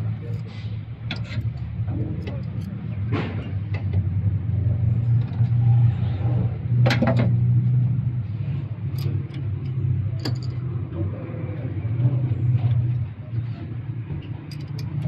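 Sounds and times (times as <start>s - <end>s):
steady low hum: 0.0s - 15.0s
metallic clicks of hand tools: 14.2s - 15.0s.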